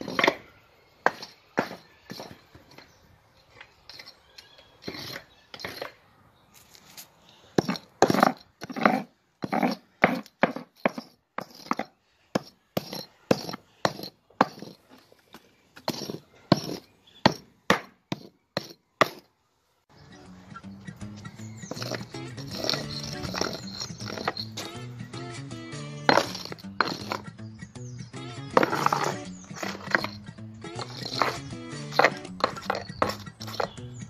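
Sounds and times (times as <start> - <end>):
hand tool scraping out mortar: 0.0 - 3.0, 3.8 - 6.0, 6.7 - 15.1, 15.8 - 19.3, 21.6 - 24.8, 26.0 - 27.3, 28.5 - 34.0.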